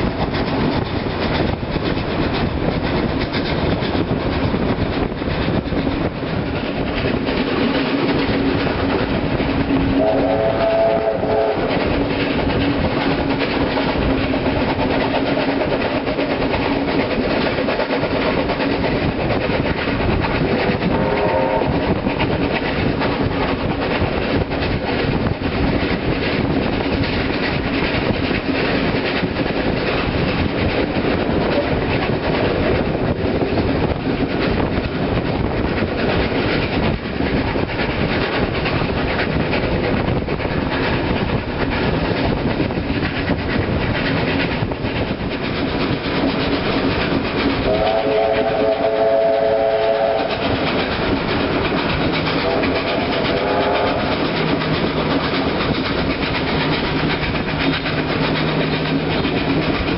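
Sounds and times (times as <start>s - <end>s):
steam locomotive exhaust: 0.0s - 59.9s
wheels on rail: 0.0s - 59.9s
steam whistle: 9.8s - 11.7s, 20.9s - 21.9s, 47.7s - 50.4s, 52.4s - 54.1s.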